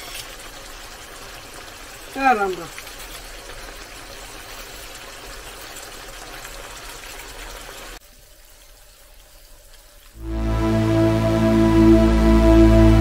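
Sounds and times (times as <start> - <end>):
food sizzling in a frying pan: 0.0 - 10.2
music with sustained tones: 10.2 - 13.0.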